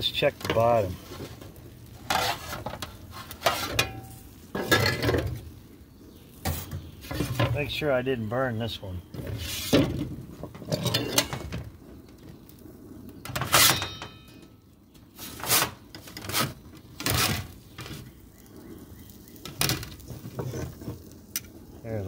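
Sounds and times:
metal pans clanking on a steel counter: 0:02.1 - 0:05.3, 0:10.5 - 0:11.6.

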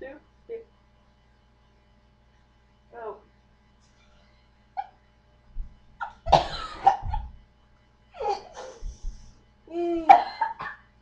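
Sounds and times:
person coughing and choking: 0:06.0 - 0:07.3, 0:10.0 - 0:10.9.

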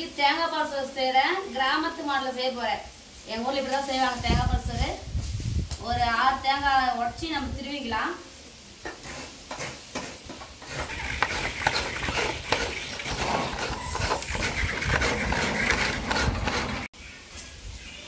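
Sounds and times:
coconut scraped on metal grater: 0:09.0 - 0:16.9.

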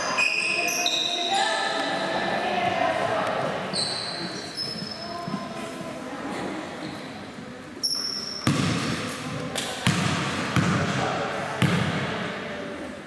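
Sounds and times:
sneakers squeaking: 0:00.0 - 0:02.3, 0:03.4 - 0:05.6, 0:06.8 - 0:11.0
murmur of voices: 0:00.0 - 0:13.0
basketball bouncing on wood floor: 0:08.4 - 0:09.0, 0:09.8 - 0:11.0, 0:11.6 - 0:12.0.

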